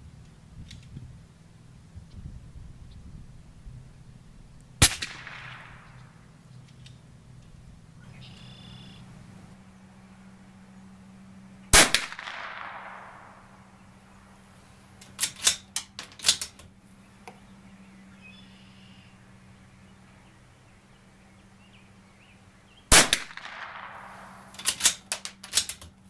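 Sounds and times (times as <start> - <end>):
rifle shot with echo: 4.8 - 6.3, 11.7 - 13.8, 22.9 - 25.0
faint bird calls: 7.6 - 11.8, 16.8 - 23.0
metallic clicks of rifle bolt: 15.0 - 16.7, 24.5 - 26.0.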